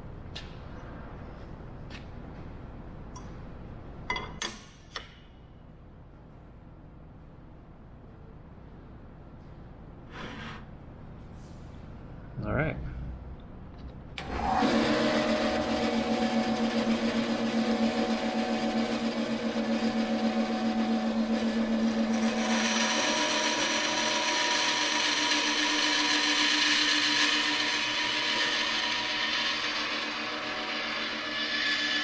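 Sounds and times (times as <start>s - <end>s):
bandsaw running: 14.2s - 32.0s
saw blade cutting metal: 14.6s - 32.0s.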